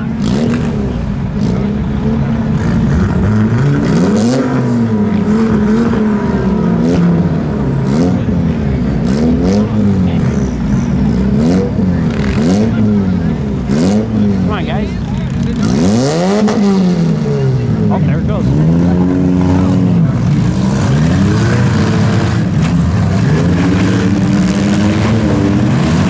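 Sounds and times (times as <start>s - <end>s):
car engines revving hard: 0.0s - 26.0s.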